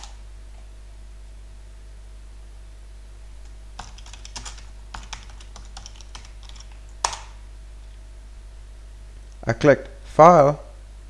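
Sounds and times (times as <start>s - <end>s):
typing on computer keyboard: 0.0s - 0.2s, 3.8s - 7.4s
steady low hum: 0.0s - 11.0s.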